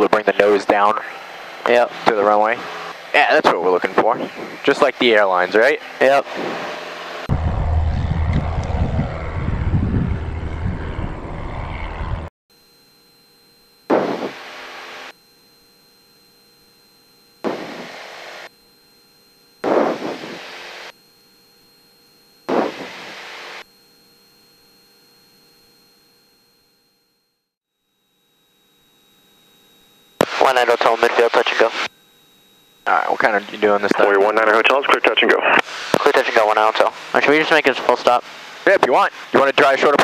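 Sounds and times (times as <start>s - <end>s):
airplane engine at takeoff power: 0.0s - 15.1s
short bursts of noise: 19.6s - 20.9s.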